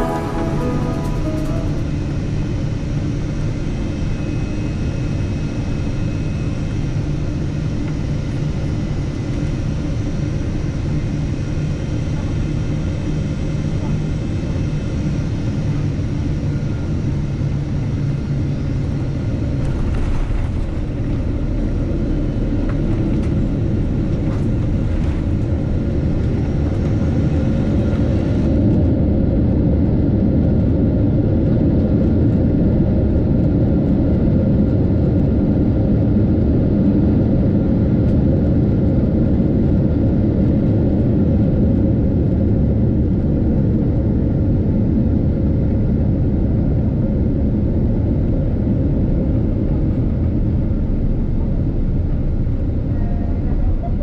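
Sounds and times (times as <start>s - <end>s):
airplane engines idling: 0.0s - 32.7s.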